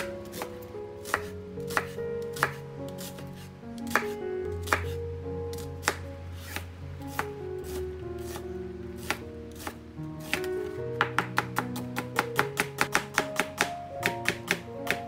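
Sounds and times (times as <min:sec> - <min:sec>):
knife chopping onion on board: 0:00.0 - 0:03.2, 0:03.9 - 0:05.0, 0:09.0 - 0:10.4, 0:11.0 - 0:15.0.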